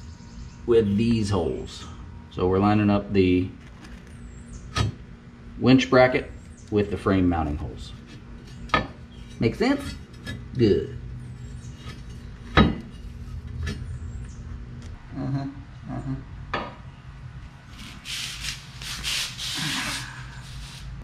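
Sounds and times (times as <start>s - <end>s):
steady low hum: 0.0s - 21.0s
metal bracket scraping: 7.9s - 14.3s
metal bracket knocking: 11.9s - 13.0s.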